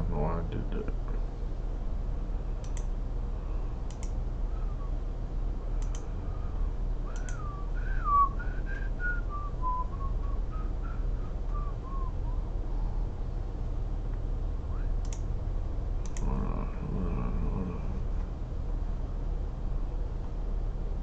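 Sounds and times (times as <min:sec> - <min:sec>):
steady low hum: 0:00.0 - 0:21.0
short clicks: 0:02.6 - 0:02.9, 0:03.8 - 0:04.2, 0:05.8 - 0:06.1, 0:07.1 - 0:07.4, 0:15.0 - 0:15.3, 0:16.0 - 0:16.3
person whistling a tune: 0:07.0 - 0:12.4.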